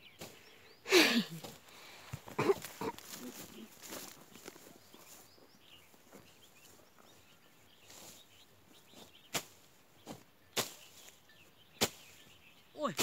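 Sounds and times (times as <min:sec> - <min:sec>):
faint bird chirps: 0:03.0 - 0:13.0.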